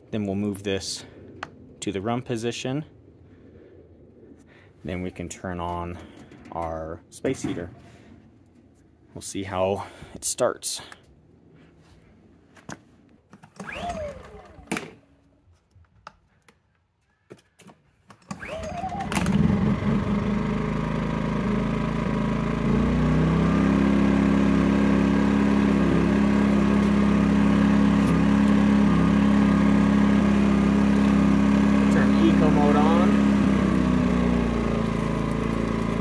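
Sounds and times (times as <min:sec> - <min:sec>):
pull cord being pulled: 0:13.3 - 0:15.0
generator engine running: 0:18.4 - 0:36.0.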